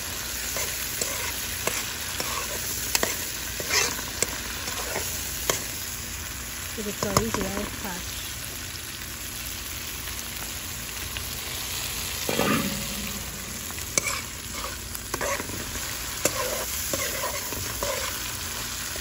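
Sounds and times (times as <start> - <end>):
food sizzling in oil: 0.0 - 19.0
metal spoon scraping pot: 0.6 - 5.6, 12.3 - 15.6, 16.2 - 18.1.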